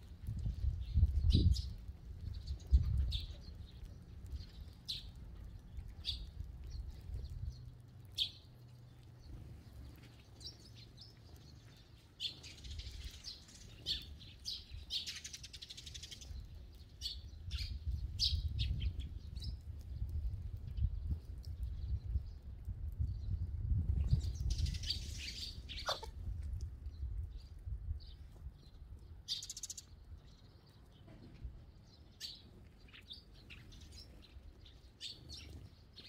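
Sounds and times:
sparrows chirping: 0:00.0 - 0:36.0
wings fluttering: 0:24.0 - 0:26.4.

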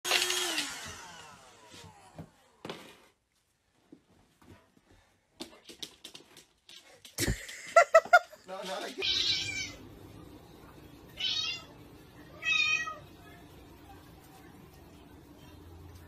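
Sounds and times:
dog claws tapping on floor: 0:05.4 - 0:09.0.

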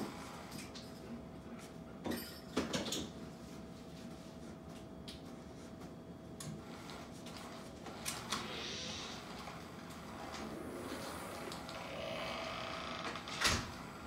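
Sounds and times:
faint motor hum: 0:03.1 - 0:14.0.

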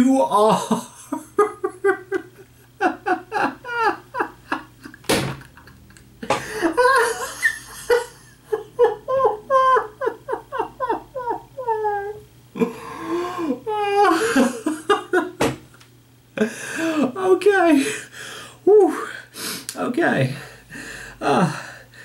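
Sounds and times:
man laughing hard: 0:00.4 - 0:15.4
sharp smack: 0:05.1 - 0:05.4.

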